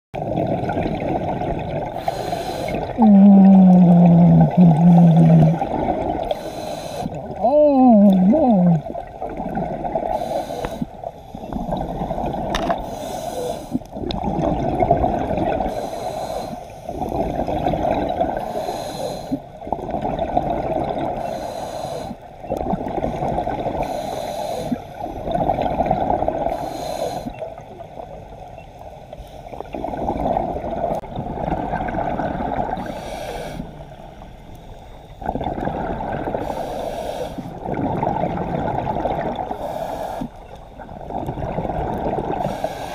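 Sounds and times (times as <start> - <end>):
exhaled bubbles burbling: 0.2 - 6.4, 7.1 - 10.2, 10.8 - 12.8, 13.8 - 15.8, 17.0 - 18.5, 19.6 - 21.3, 22.4 - 23.8, 25.0 - 26.6, 29.5 - 33.0, 35.2 - 36.7, 37.5 - 39.6, 40.8 - 42.6
regulator inhale hiss: 2.0 - 2.9, 6.3 - 7.2, 10.1 - 11.7, 12.8 - 13.9, 15.7 - 17.1, 18.4 - 19.5, 21.2 - 22.3, 23.8 - 25.2, 26.5 - 27.4, 32.8 - 35.2, 36.4 - 37.6, 39.5 - 40.5, 42.4 - 42.9.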